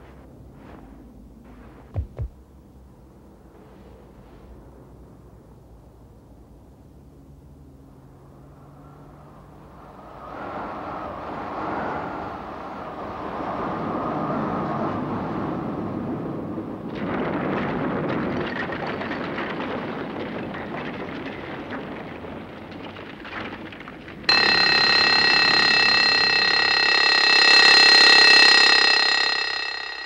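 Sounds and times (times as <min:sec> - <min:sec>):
alarm clock bell ringing: 0:24.3 - 0:30.0.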